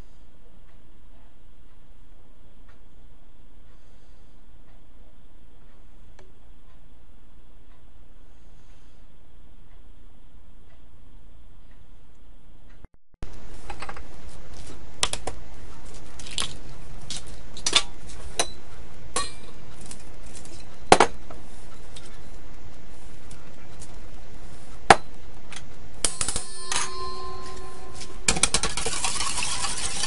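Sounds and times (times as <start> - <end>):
utensils clinking on steel bowl: 26.1 - 30.0.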